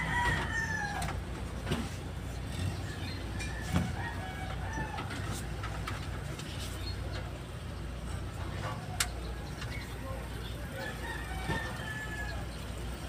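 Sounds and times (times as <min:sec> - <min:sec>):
chickens clucking: 0:00.0 - 0:13.0.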